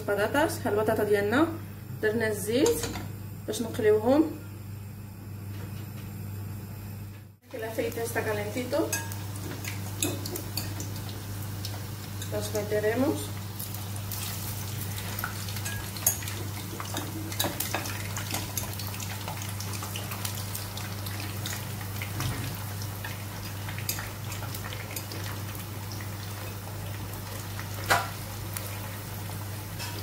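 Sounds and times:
potatoes sizzling in hot oil: 7.5 - 30.0.

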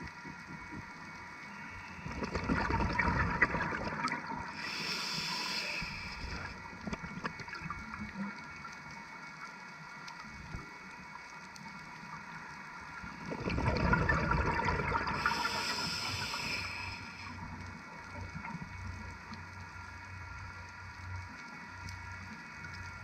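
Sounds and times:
faint underwater hiss: 0.0 - 23.0
diver's exhaled bubbles gushing: 2.0 - 4.6, 13.2 - 15.6.

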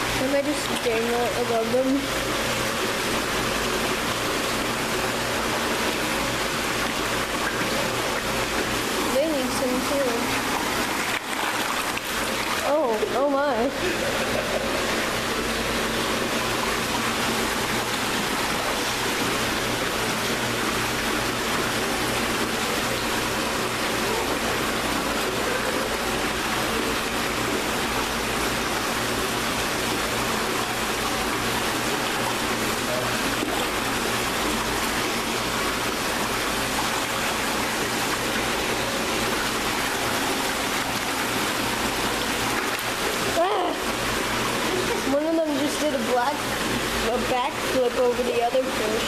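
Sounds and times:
running water rushing: 0.0 - 49.0.

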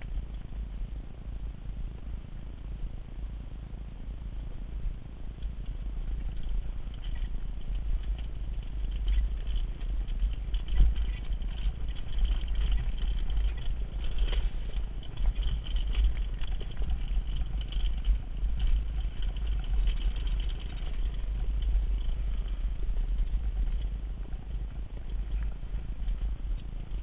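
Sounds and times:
wind rumbling on microphone: 0.0 - 27.0
mountain bike clattering over dirt: 5.4 - 27.0.

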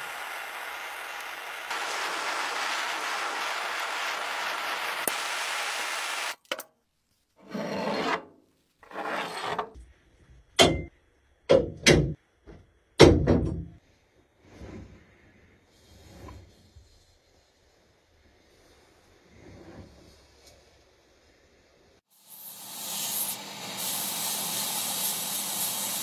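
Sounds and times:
steady machine noise: 0.0 - 6.3.

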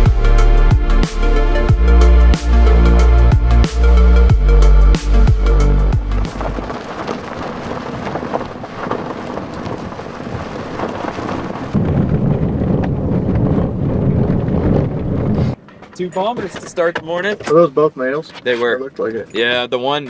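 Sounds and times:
truck cab hum: 0.0 - 15.7
wind and tyres rushing: 2.9 - 18.8.

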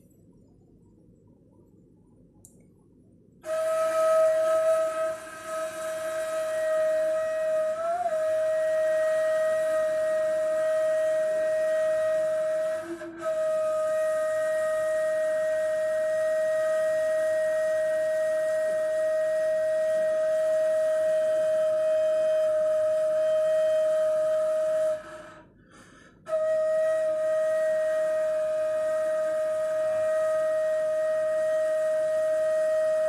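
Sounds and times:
cane flute long note: 3.4 - 33.0.

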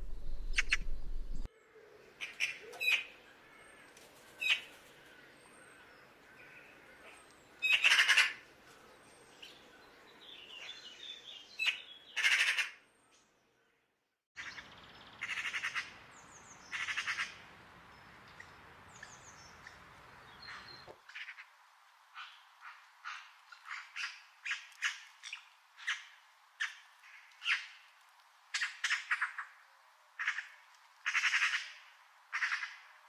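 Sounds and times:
magpie harsh rattling calls: 7.6 - 8.4, 30.2 - 32.8.

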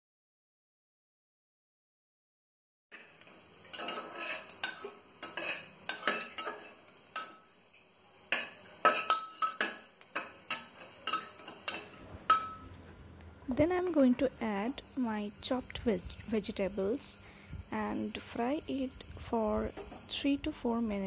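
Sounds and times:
spices frying in oil: 2.9 - 12.7, 13.5 - 21.0
spatula scraping metal pot: 3.7 - 7.3, 8.3 - 12.6.

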